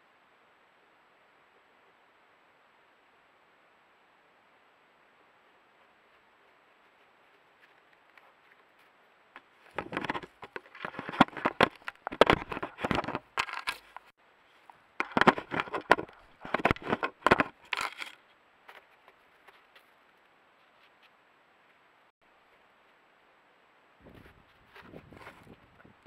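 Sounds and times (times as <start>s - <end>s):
fur scraping against camera housing: 9.6s - 14.1s, 15.0s - 18.2s.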